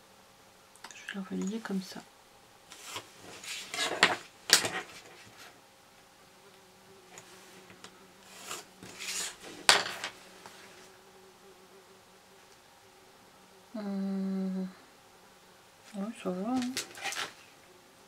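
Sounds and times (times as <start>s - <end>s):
pencil scratching along ruler: 2.7s - 5.5s, 8.2s - 9.6s.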